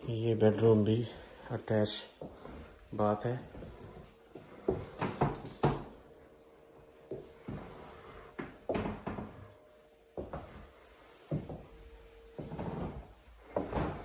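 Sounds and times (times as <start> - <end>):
faint hum: 0.0 - 14.0
footsteps on floor: 2.2 - 6.1, 6.8 - 14.0.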